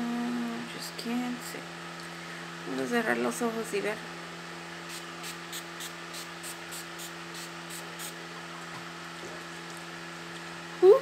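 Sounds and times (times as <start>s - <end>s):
steady low hum: 0.0s - 11.0s
spray bottle hissing puffs: 4.9s - 8.2s.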